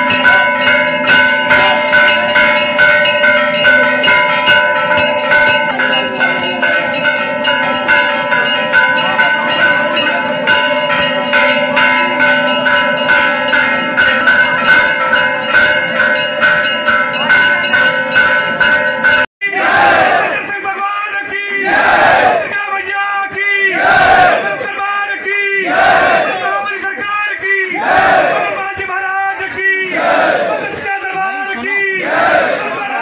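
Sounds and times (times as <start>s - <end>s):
bells rung rapidly: 0.0s - 19.3s.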